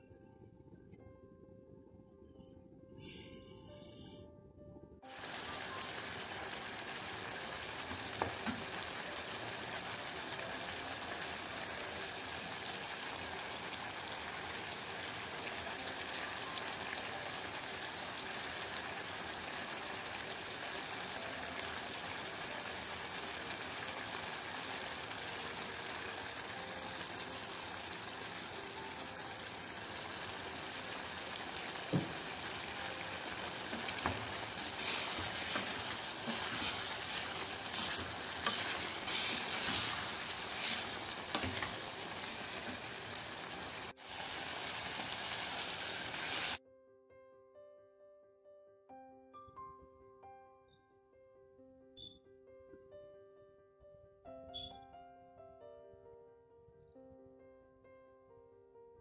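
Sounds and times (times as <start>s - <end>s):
stew sizzling in a pot: 5.0s - 46.6s.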